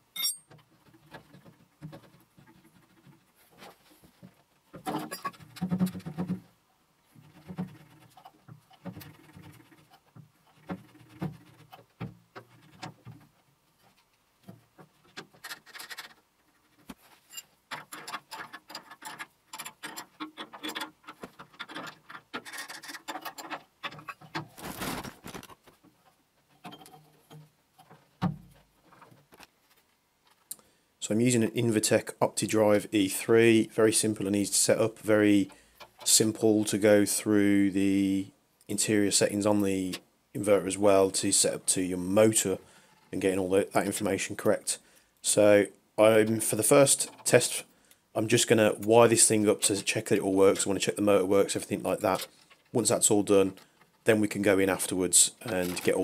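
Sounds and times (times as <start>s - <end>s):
metal parts clicking and scraping: 0.1s - 1.4s, 14.8s - 28.1s, 51.5s - 56.0s.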